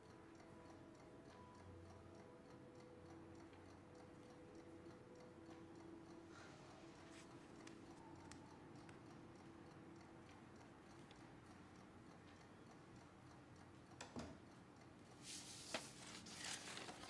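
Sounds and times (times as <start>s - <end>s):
faint soft ticks: 0.0s - 6.4s.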